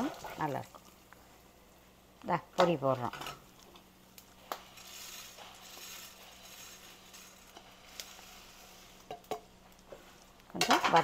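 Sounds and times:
food frying in oil: 0.0 - 11.0
puffed rice pouring: 4.2 - 9.2.

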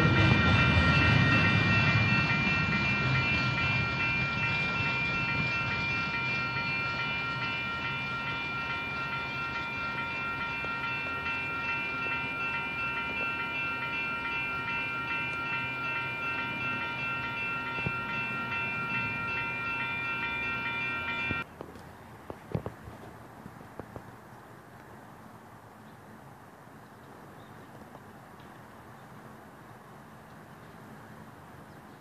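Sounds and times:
freight train rumbling past: 0.0 - 21.5.

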